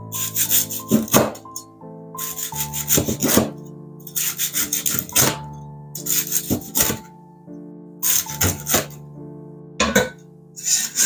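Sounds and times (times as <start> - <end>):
soft background music: 0.0 - 11.0.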